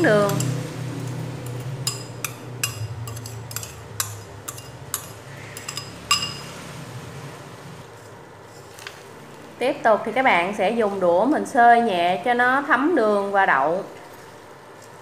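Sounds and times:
steady low hum: 0.0 - 15.0
metal spoon clinking on ceramic bowl: 0.1 - 6.6.

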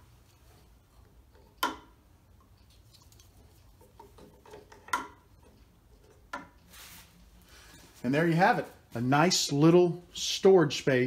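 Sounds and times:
faint taps of tube in rack: 1.6 - 2.0.

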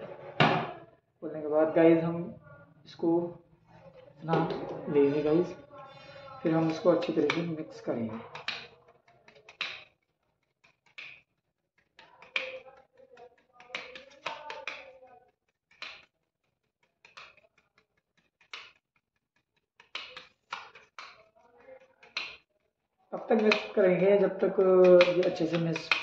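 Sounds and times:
putty knife scraping and tapping: 8.1 - 22.5.

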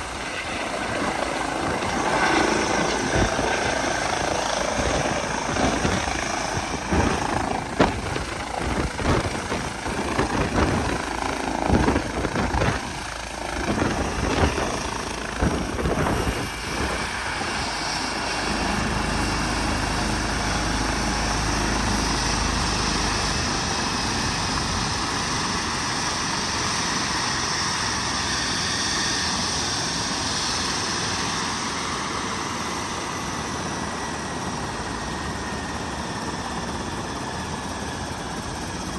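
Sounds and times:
rotor downwash buffeting microphone: 0.0 - 17.7
helicopter rotor and turbines running: 0.0 - 38.9.

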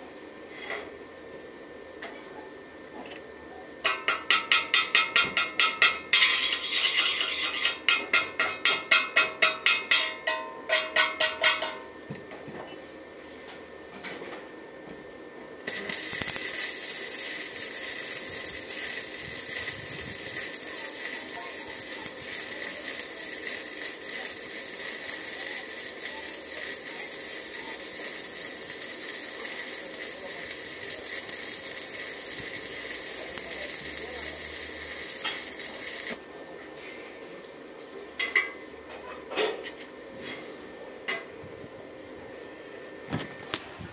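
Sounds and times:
welding arc crackling: 4.1 - 10.1, 15.6 - 36.2.

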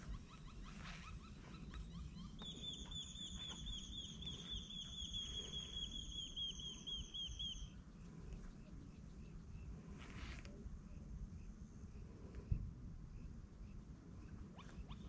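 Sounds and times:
bird calling: 0.0 - 7.8.

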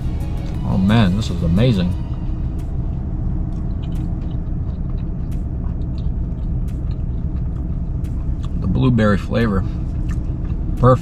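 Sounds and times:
steady low rumble: 0.0 - 11.0
person chewing food: 2.1 - 10.8.

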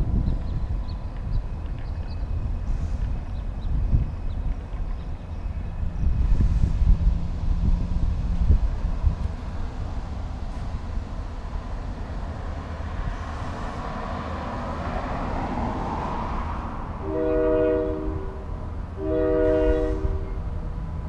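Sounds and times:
diesel locomotive rumble: 0.0 - 21.0
train air horn blasts: 17.0 - 20.4.

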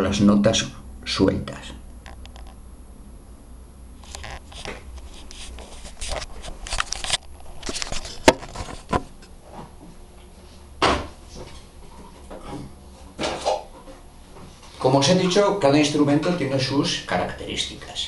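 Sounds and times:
handling rustling and knocks: 4.0 - 14.7
thump: 10.8 - 11.1.

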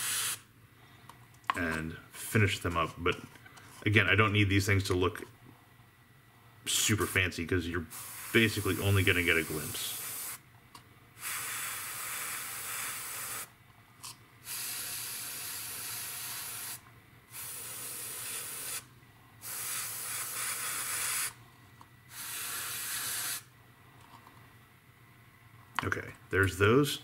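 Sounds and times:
airbrush spraying hiss: 0.0 - 0.4, 7.9 - 10.4, 11.2 - 13.5, 14.4 - 21.4, 22.1 - 23.5.

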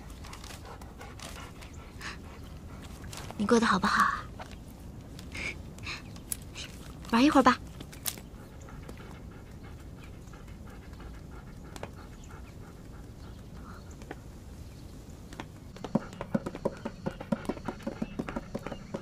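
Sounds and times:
dog panting: 0.0 - 3.4, 8.2 - 14.0, 15.7 - 19.0
paws tapping on wooden floorboards: 0.0 - 3.4, 7.8 - 14.2, 15.3 - 19.0.

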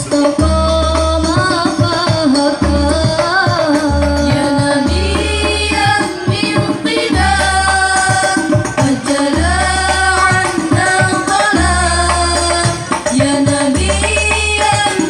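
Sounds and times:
frame drums playing busy rhythm: 0.0 - 15.0
girls singing through microphones: 0.0 - 15.0.

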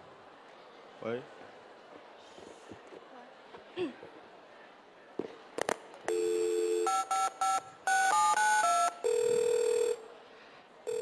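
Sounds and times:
keypad beeps: 6.1 - 10.0
telephone ringing tone: 6.1 - 10.0
dial tone: 8.1 - 10.0.

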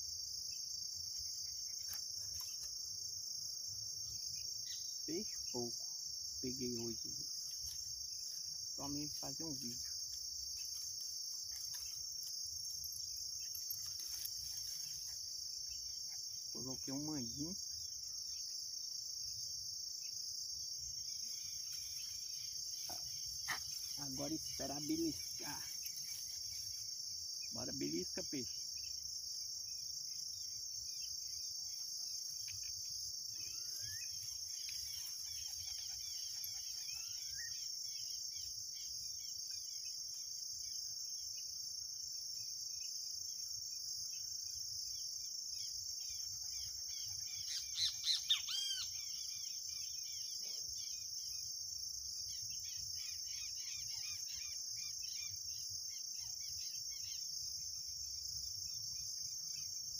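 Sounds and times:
high-pitched insect chorus: 0.0 - 59.9
birds chirping: 20.9 - 29.0, 45.6 - 51.5.

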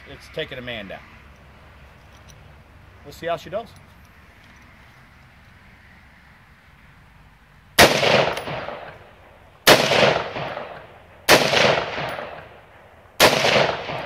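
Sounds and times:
rifle shots: 7.8 - 14.0.

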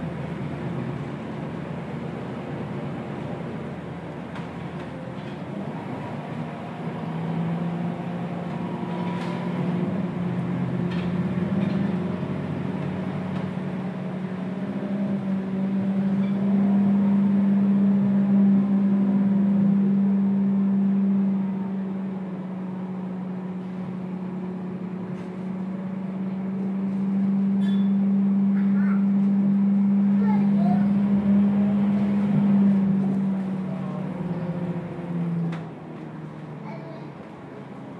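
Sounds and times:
bus diesel engine hum: 0.0 - 37.9.

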